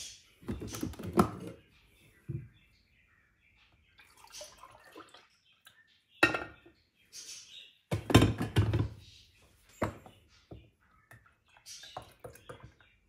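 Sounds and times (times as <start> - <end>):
glass and plastic clatter: 7.9 - 9.0.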